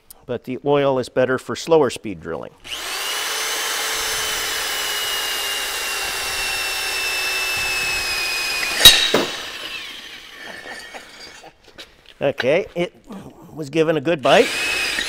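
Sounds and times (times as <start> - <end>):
electric drill whining: 2.6 - 11.4, 14.2 - 15.0.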